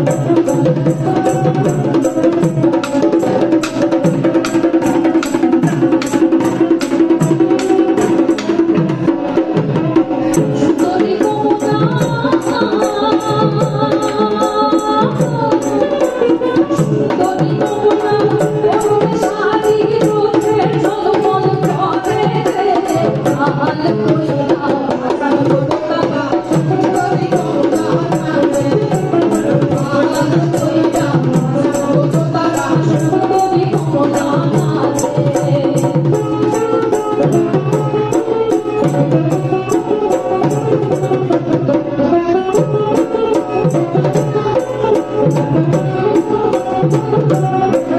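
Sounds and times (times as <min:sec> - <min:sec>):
hand-played barrel drum: 0:00.0 - 0:47.9
woman singing folk song: 0:10.6 - 0:37.6
strummed string instrument: 0:24.6 - 0:47.9.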